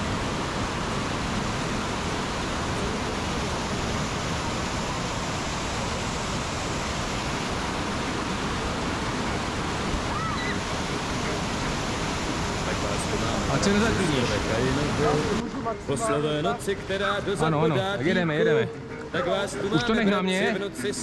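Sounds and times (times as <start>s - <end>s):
river water rushing over weir: 0.0s - 21.0s.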